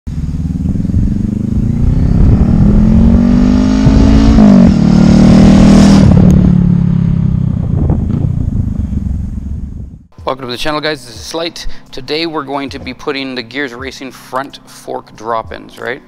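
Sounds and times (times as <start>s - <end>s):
motorcycle engine accelerating: 0.1s - 10.1s.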